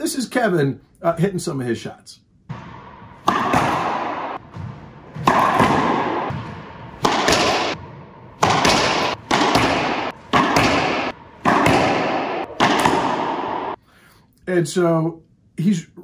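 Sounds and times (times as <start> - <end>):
ball hitting walls: 2.5 - 13.8
racquet hitting ball: 2.5 - 13.8.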